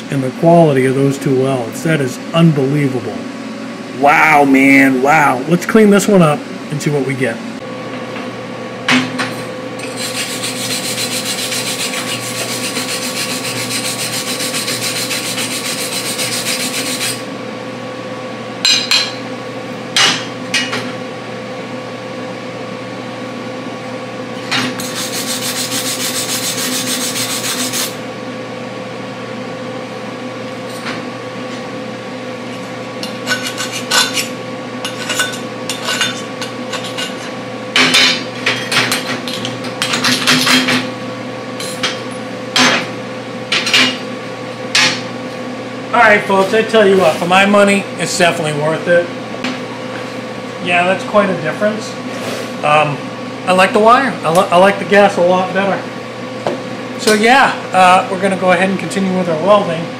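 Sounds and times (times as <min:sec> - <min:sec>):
wire brush scrubbing steel: 0:09.8 - 0:17.2, 0:24.8 - 0:28.0.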